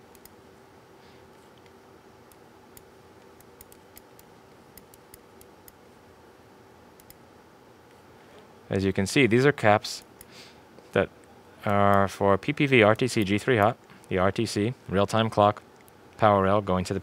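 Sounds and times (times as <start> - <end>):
faint steady hum: 0.0 - 17.0
computer mouse clicking: 0.1 - 0.4, 1.5 - 5.8, 7.0 - 7.2.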